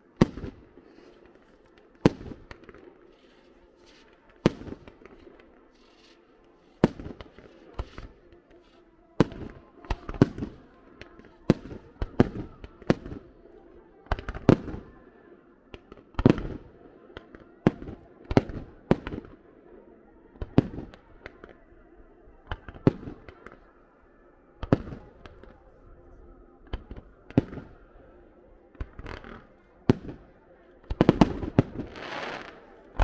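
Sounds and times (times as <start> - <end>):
fireworks bangs echoing: 28.8 - 33.0.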